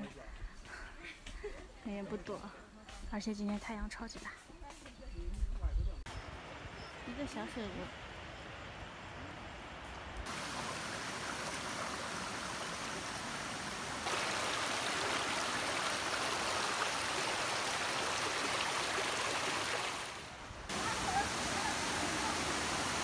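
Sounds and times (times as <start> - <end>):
stream running over rocks: 6.1 - 23.0.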